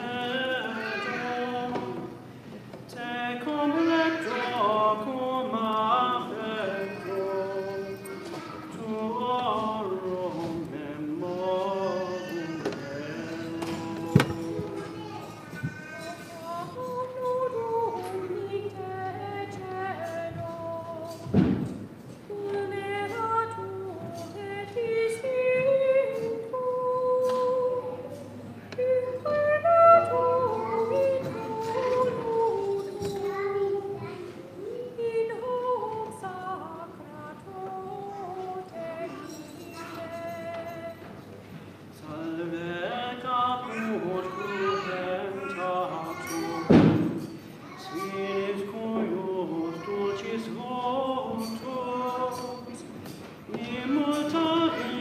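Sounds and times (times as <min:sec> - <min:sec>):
woman singing slow chant: 0:02.9 - 0:14.9, 0:16.1 - 0:21.4, 0:22.3 - 0:41.2.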